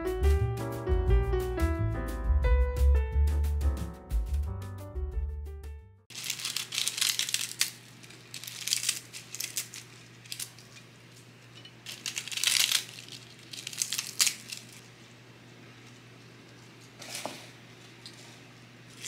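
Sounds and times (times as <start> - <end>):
lettuce leaves tearing: 6.1 - 10.8, 11.8 - 15.0.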